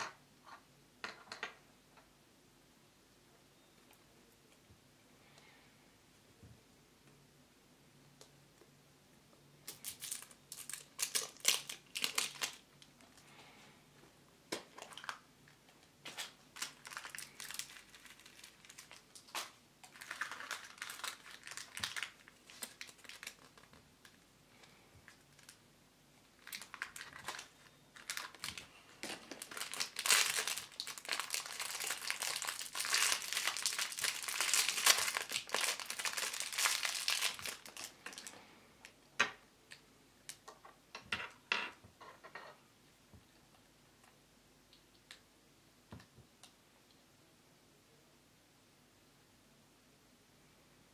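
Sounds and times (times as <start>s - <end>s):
wrapper crinkling and tearing: 9.6s - 13.2s, 14.6s - 15.3s, 16.0s - 25.6s, 26.4s - 38.4s.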